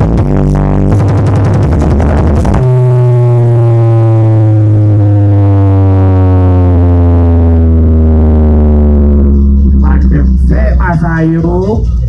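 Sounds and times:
deep electronic bass tone gliding down: 0.0s - 12.0s.

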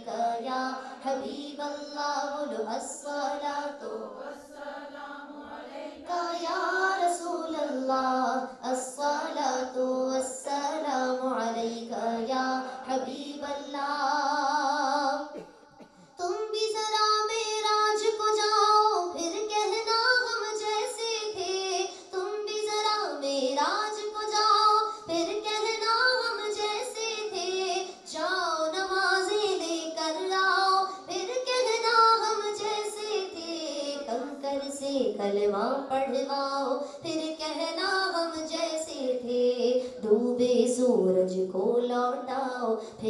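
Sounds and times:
woman singing unaccompanied: 0.0s - 15.4s, 16.2s - 43.0s.

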